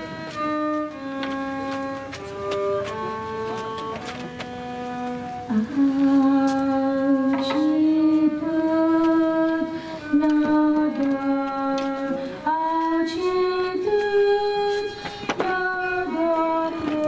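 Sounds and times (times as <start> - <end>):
woman chanting over loudspeaker: 5.5 - 17.0.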